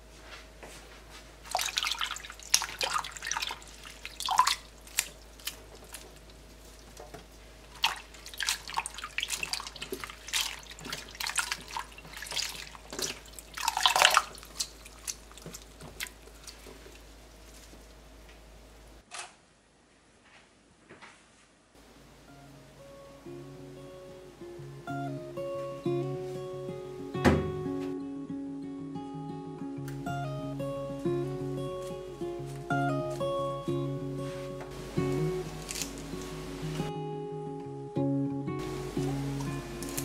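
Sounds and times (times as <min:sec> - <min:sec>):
hands splashing water in bowl: 0:01.5 - 0:07.0, 0:07.7 - 0:17.1.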